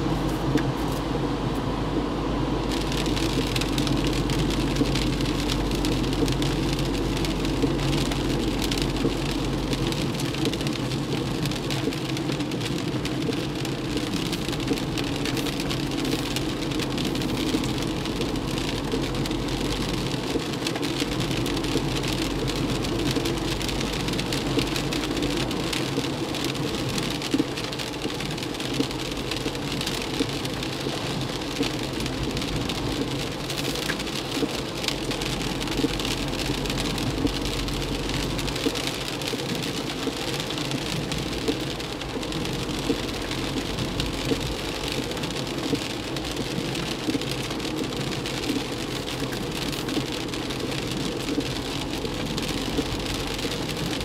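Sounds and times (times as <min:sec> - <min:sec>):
heavy rain on car: 0:00.0 - 0:54.0
tyres and engine hum: 0:00.0 - 0:54.0.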